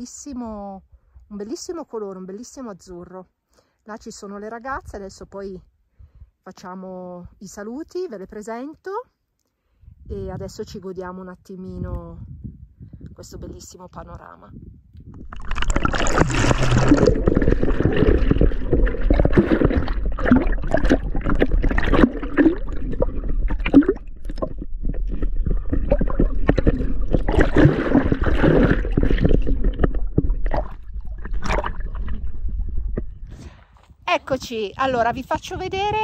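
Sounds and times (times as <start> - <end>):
water splashing from swimming: 15.2 - 33.3.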